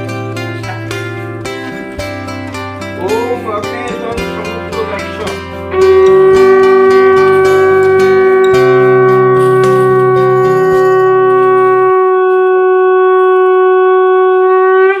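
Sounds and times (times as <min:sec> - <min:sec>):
conch shell blown: 0:00.0 - 0:02.0, 0:04.8 - 0:15.0
lower tone: 0:04.2 - 0:15.0.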